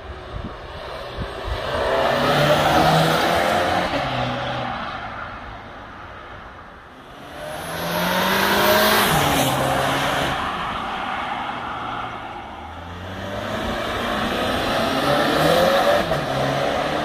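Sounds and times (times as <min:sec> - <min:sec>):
car engine accelerating hard: 0:13.0 - 0:17.0.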